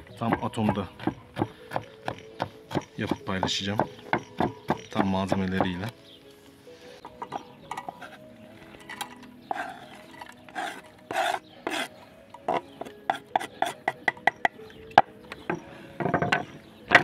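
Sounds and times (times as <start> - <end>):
knife scraping a cutting board: 9.5 - 11.9.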